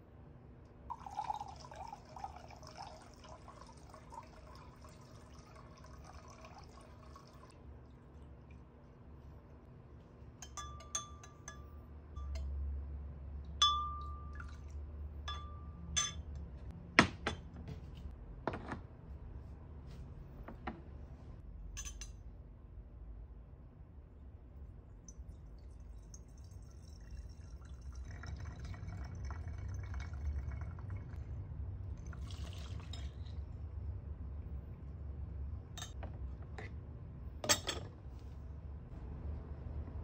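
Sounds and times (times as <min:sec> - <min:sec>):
liquid pouring and gurgling: 0:00.9 - 0:08.7, 0:25.1 - 0:33.7
spoon clinking against glass: 0:10.4 - 0:12.5, 0:13.6 - 0:14.6, 0:15.3 - 0:16.3, 0:21.8 - 0:22.2.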